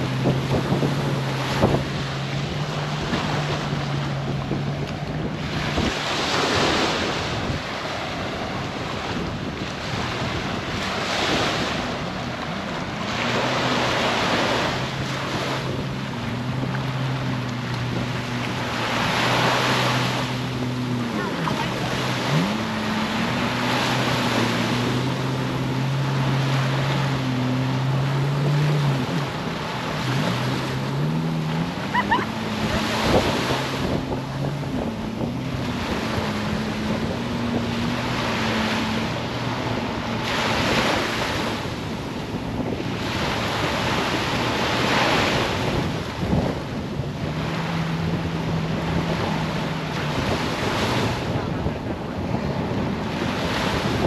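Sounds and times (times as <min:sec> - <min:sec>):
engine droning: 0:00.0 - 0:54.0
surf washing onto beach: 0:00.0 - 0:54.0
wind buffeting microphone: 0:00.0 - 0:54.0.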